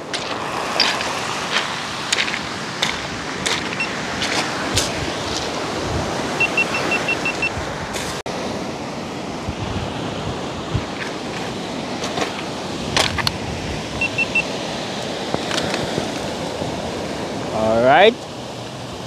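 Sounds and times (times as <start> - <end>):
surf on pebble beach: 0.0 - 19.0
short high beeps: 6.4 - 7.5, 14.0 - 14.5.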